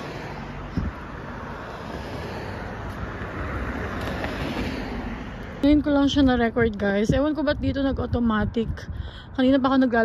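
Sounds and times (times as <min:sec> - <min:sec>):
car passing: 0:00.0 - 0:06.8
road traffic noise: 0:00.0 - 0:10.0.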